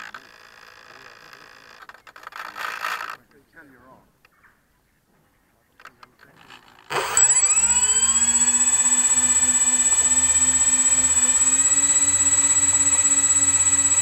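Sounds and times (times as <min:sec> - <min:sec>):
small electric motor whine: 0:06.9 - 0:14.0
thin high tone: 0:07.1 - 0:14.0.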